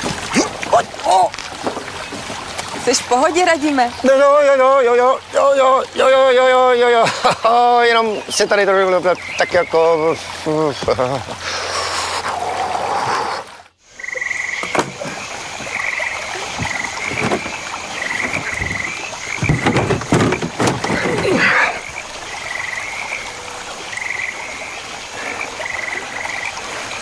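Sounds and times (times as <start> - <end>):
frogs croaking: 0.6 - 27.0
knocks and rustles: 14.6 - 15.8, 16.4 - 21.6.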